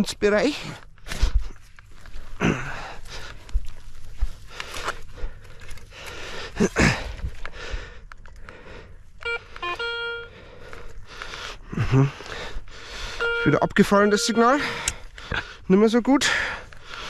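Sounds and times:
crunching on soil: 0.0s - 9.0s
metal detector beeps: 9.2s - 10.4s, 13.2s - 14.9s.

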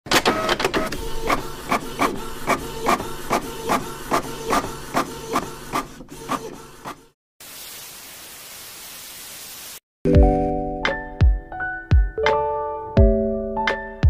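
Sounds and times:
cutting machine motors whirring: 0.3s - 7.1s.

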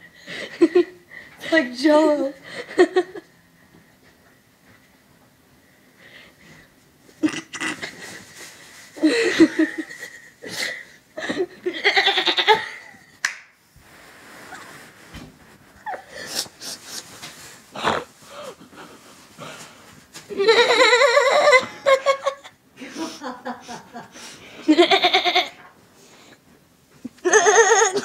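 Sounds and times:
woman laughing: 0.4s - 1.0s, 2.5s - 3.3s, 9.0s - 13.1s, 15.8s - 17.0s, 20.3s - 24.1s, 27.2s - 28.0s.

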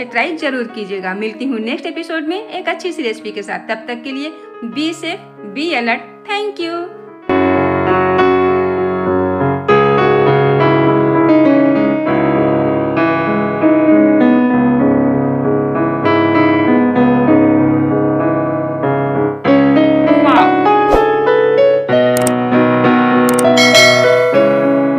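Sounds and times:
background piano music: 0.0s - 24.9s
person speaking: 20.2s - 21.1s.

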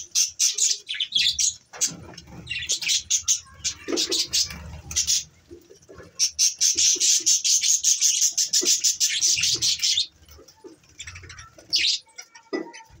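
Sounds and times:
budgerigars chattering: 0.0s - 10.1s.

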